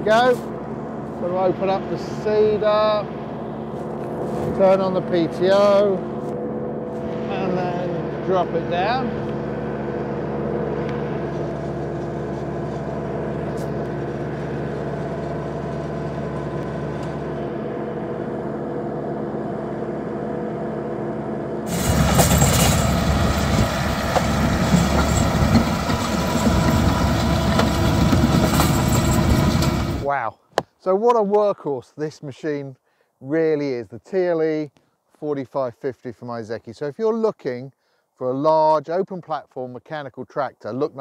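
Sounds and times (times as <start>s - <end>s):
tractor engine running under load: 0.0s - 30.1s
rotor churning soil: 0.0s - 30.2s.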